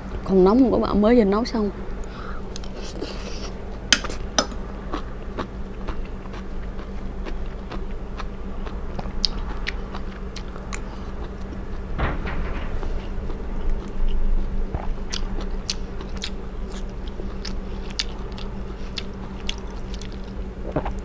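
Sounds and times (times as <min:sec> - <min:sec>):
wet chewing: 0:04.9 - 0:11.5, 0:14.8 - 0:21.0.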